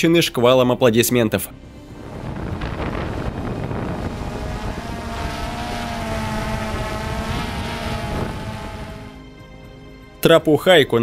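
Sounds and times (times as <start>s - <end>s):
drone propellers whining: 1.7s - 9.3s
wind noise: 1.8s - 9.2s.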